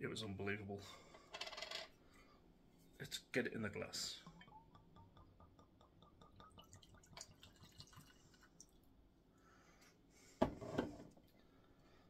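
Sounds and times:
liquid pouring into a glass: 4.2 - 8.9.

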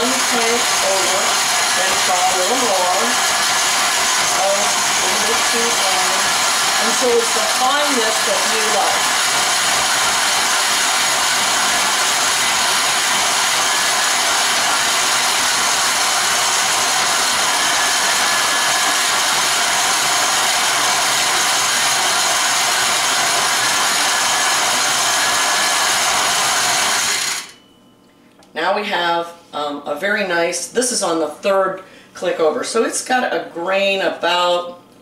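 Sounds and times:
stand mixer grinding whir: 0.0 - 27.6.

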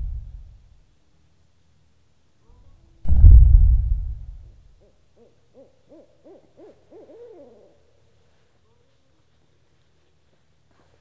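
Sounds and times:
deep boom: 0.0 - 0.5, 3.1 - 4.6.

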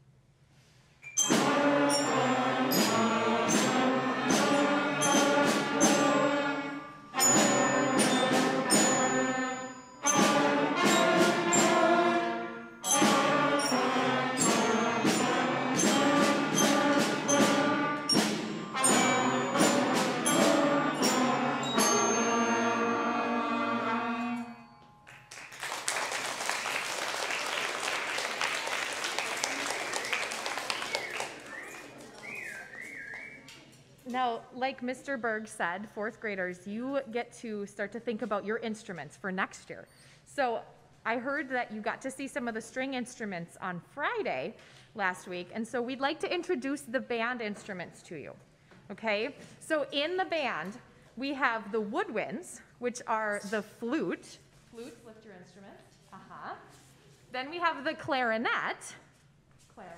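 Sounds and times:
school concert band playing: 1.2 - 33.3
audience applause: 25.1 - 32.8.

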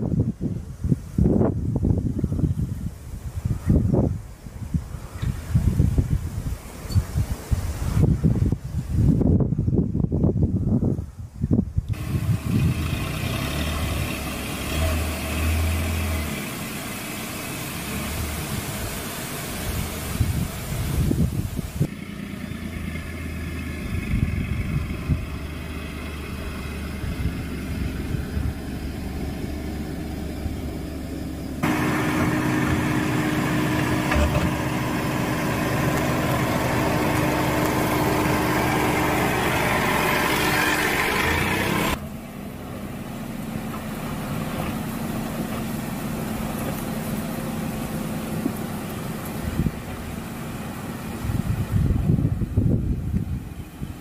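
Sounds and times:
car engine humming at low speed: 11.5 - 54.0.

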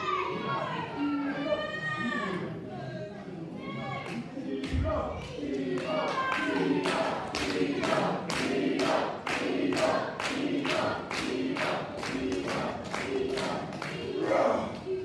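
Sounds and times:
crowd chanting in unison: 0.0 - 15.0
crowd clapping in rhythm: 4.1 - 15.0.

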